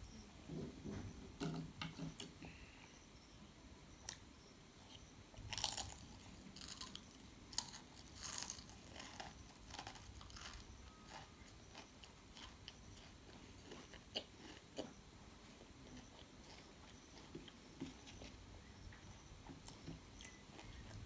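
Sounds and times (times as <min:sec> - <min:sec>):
soft chewing with clicks: 0:04.0 - 0:21.0
person crunching crisp snack: 0:05.5 - 0:14.8.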